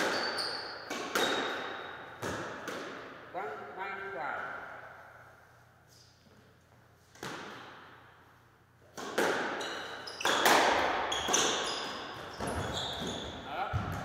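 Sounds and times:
squash ball hitting racket and walls: 0.0 - 3.6, 6.0 - 14.0
shoes squeaking on wooden floor: 11.1 - 13.6.

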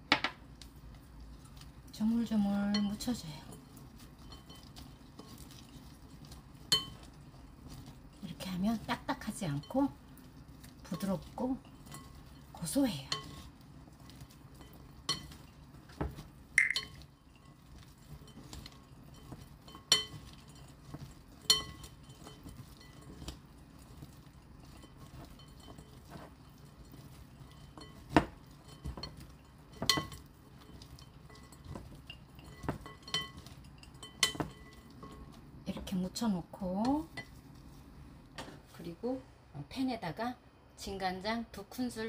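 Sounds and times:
glass bowl clinking: 16.6 - 17.0, 24.7 - 35.3.

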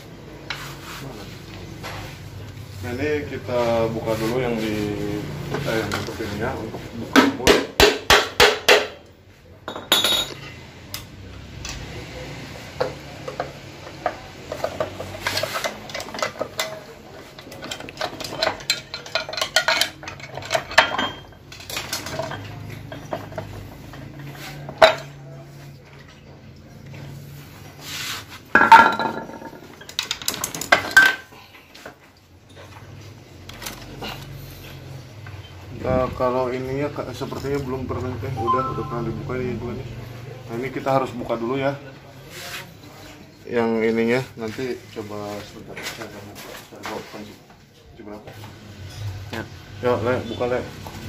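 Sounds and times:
metal tools clinking: 17.5 - 23.6.

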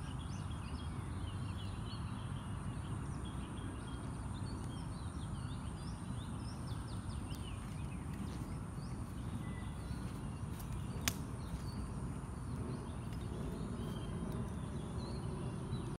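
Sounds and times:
birds chirping: 0.0 - 16.0
low background rumble: 0.0 - 16.0.

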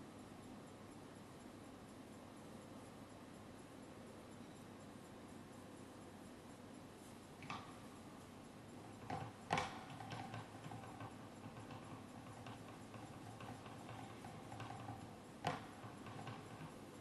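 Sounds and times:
objects ticking and knocking on tabletop: 7.4 - 17.0.

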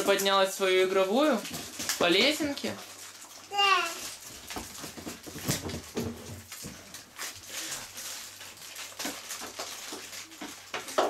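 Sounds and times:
toddler cooing: 3.5 - 4.1.

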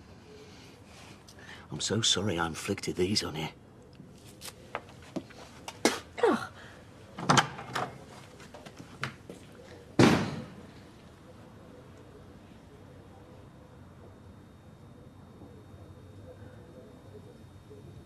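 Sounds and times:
door slamming: 10.0 - 10.6.

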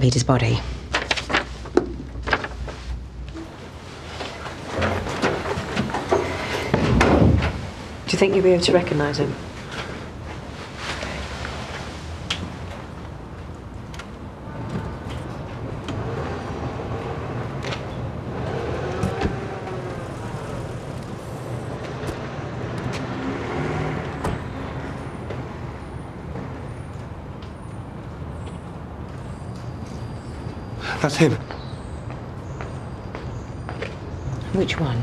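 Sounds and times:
traffic engines running: 2.1 - 35.0.

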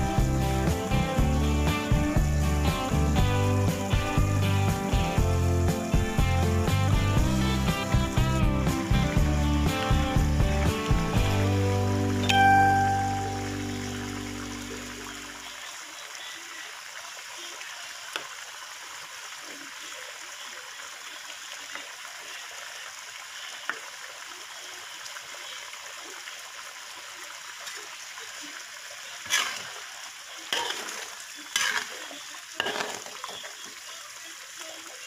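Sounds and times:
sauce bubbling in a wok: 28.4 - 34.0
spatula scraping a wok: 29.3 - 29.7, 30.5 - 33.1.

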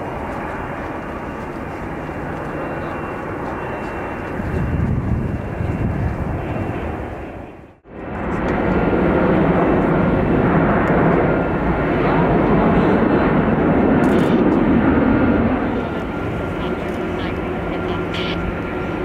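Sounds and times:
loud jet engine noise: 0.0 - 19.0.

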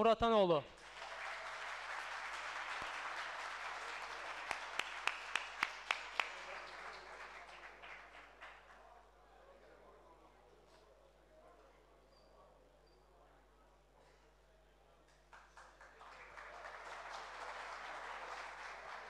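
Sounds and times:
sharp claps close by: 0.8 - 8.8
audience applauding: 0.8 - 9.0, 15.3 - 19.0.

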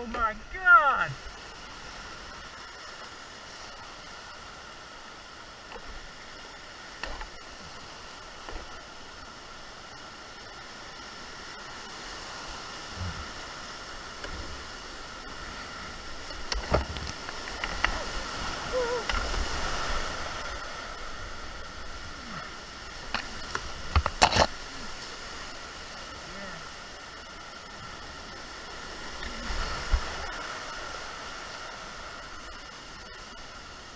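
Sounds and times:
whitewater rushing: 0.0 - 33.9
paddle splashes: 10.7 - 26.8.

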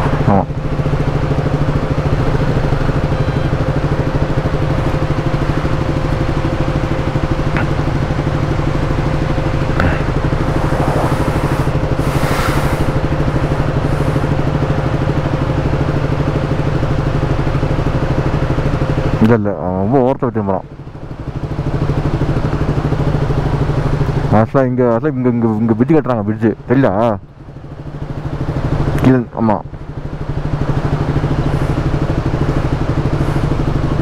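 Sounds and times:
motorcycle engine running: 0.0 - 34.0
short hiss: 10.5 - 13.1.

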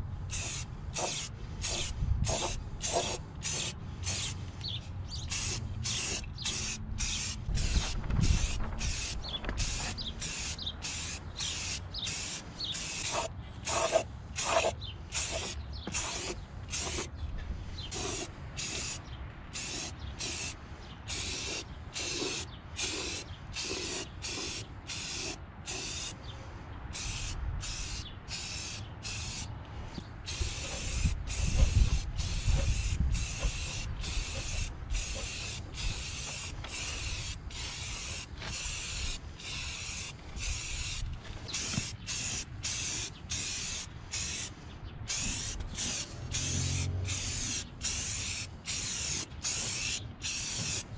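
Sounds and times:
aerosol spray can hissing: 0.3 - 17.1, 17.9 - 19.0, 19.6 - 26.1, 27.0 - 29.5, 30.3 - 44.5, 45.1 - 50.9
wind rumble on microphone: 1.7 - 3.0, 6.3 - 10.2, 26.8 - 28.0, 29.9 - 36.2.

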